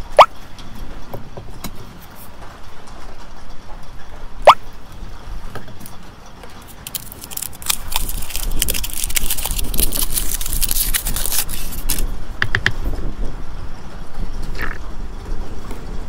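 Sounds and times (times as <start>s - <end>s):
aluminium foil crinkling: 5.8s - 12.1s.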